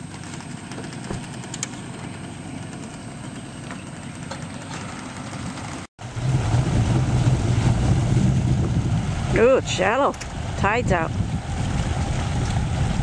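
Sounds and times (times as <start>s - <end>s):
engine idling: 0.0s - 7.8s
outboard motor hum: 0.0s - 13.0s.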